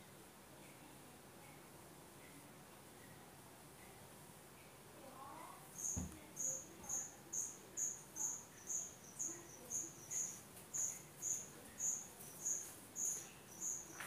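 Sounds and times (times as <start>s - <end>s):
cricket chirping: 5.8s - 14.0s.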